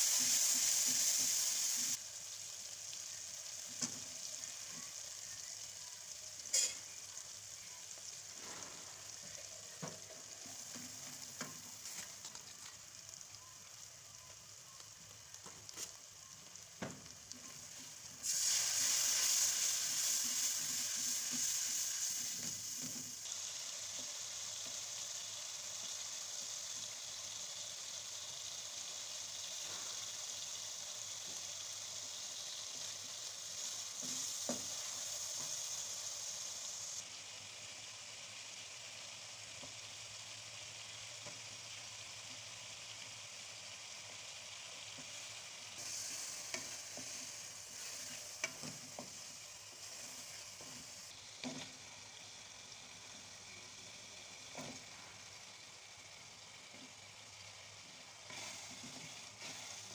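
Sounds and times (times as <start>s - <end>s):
onions sizzling in a pan: 0.0s - 59.9s.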